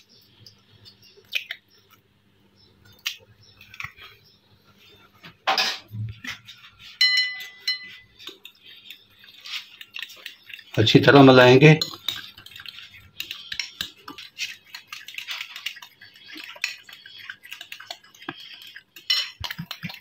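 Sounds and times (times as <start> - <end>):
fork clinking against bowl: 7.0 - 8.4, 11.7 - 14.3, 17.8 - 20.0.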